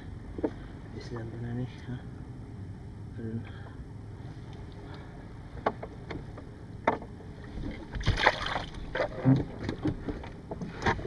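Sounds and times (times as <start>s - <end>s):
water splashing: 7.4s - 9.9s.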